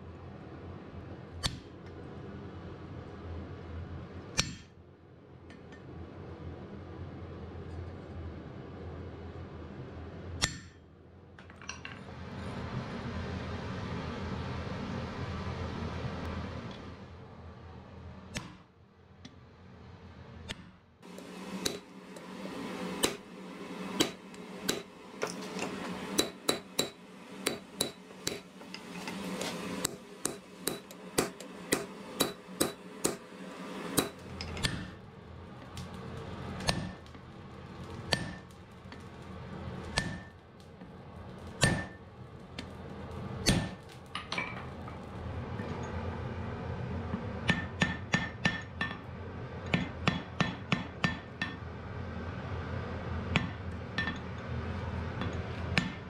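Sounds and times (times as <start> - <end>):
hammer striking iron on anvil: 4.4 - 4.7, 10.4 - 10.8, 20.5 - 22.3, 23.0 - 35.0, 36.6 - 37.0, 38.1 - 38.5, 39.9 - 40.4, 41.6 - 42.0, 43.4 - 44.6, 47.4 - 49.1, 49.7 - 51.7, 53.3 - 54.4, 55.2 - 56.0.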